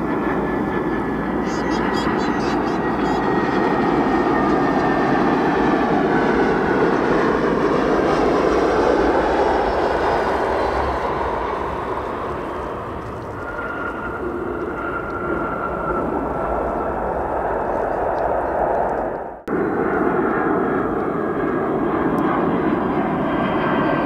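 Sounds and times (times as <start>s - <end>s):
jet engines passing by: 0.0s - 24.0s.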